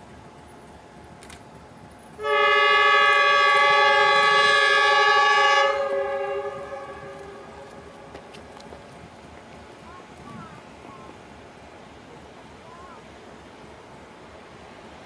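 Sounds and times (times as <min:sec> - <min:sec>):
locomotive horn blast: 0:02.2 - 0:08.1.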